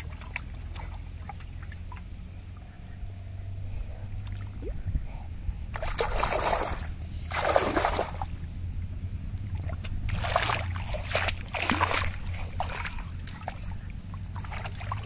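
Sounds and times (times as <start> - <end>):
water splashing: 0.0 - 2.2, 5.7 - 8.5, 9.4 - 15.0
steady low hum: 0.0 - 15.0.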